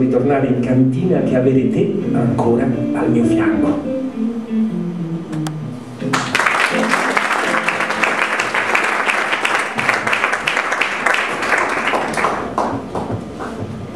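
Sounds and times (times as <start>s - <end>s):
backing music: 0.0s - 10.1s
audience applauding: 6.1s - 13.6s.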